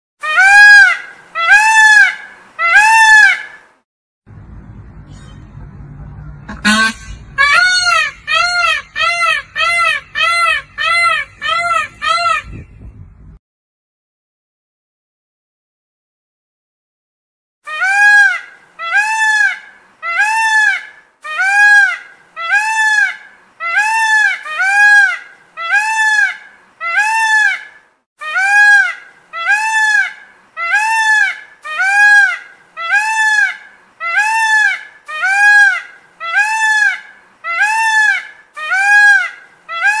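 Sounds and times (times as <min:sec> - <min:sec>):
peacock honking calls: 0:00.2 - 0:03.6, 0:06.4 - 0:12.7, 0:17.7 - 0:40.0.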